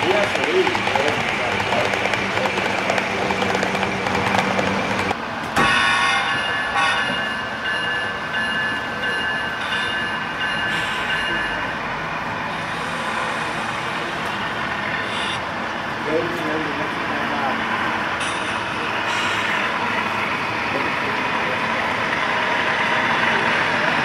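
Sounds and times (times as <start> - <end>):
model train running: 0.0 - 5.2, 12.5 - 24.0.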